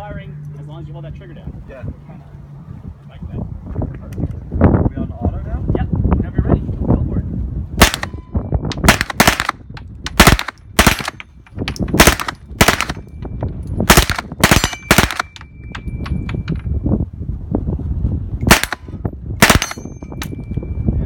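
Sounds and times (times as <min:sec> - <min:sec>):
submachine gun shots: 0:08.9 - 0:11.2, 0:12.0 - 0:13.0, 0:18.5 - 0:18.8, 0:19.4 - 0:19.8.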